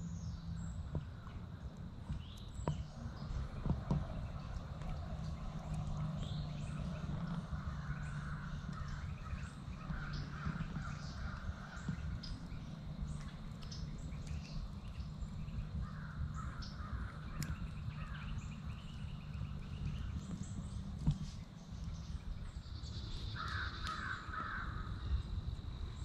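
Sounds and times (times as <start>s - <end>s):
low steady hum: 0.0s - 26.0s
songbirds chirping and whistling: 0.0s - 26.0s
crows cawing: 7.6s - 12.1s, 15.8s - 18.2s, 23.3s - 25.0s.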